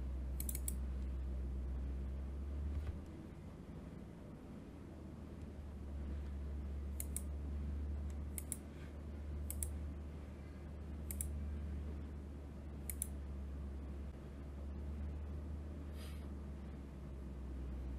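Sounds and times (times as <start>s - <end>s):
steady low hum: 0.0s - 17.9s
computer mouse clicking: 0.4s - 0.8s, 6.9s - 7.3s, 8.1s - 8.7s, 9.4s - 9.8s, 11.0s - 11.4s, 12.8s - 13.2s.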